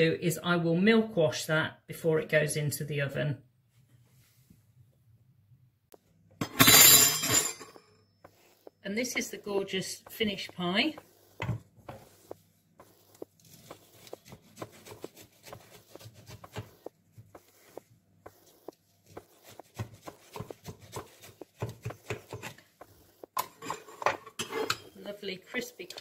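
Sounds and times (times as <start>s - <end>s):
knife cutting crisp pastry crust: 12.9s - 16.8s, 19.0s - 22.6s.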